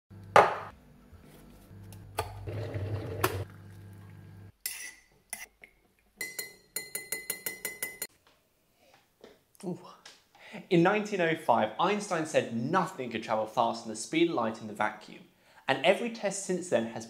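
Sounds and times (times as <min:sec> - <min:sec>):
teaspoon clinking against mug: 0:06.2 - 0:08.1.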